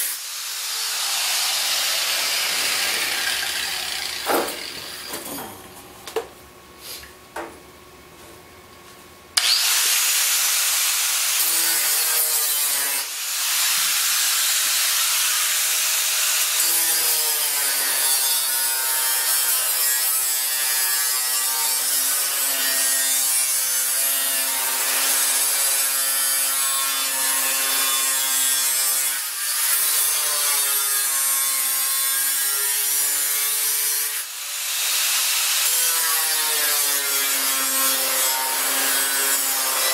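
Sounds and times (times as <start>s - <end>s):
angle grinder cutting steel: 0.0s - 5.7s, 9.4s - 39.9s.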